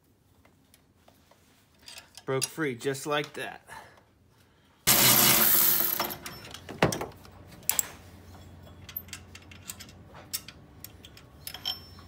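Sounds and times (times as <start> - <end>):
metal tools and bolt clinking: 1.7 - 3.4, 4.9 - 12.0.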